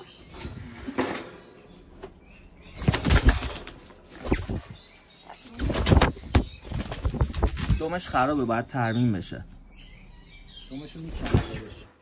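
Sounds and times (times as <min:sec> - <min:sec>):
parrot wings beating: 0:02.8 - 0:04.8, 0:05.5 - 0:07.8.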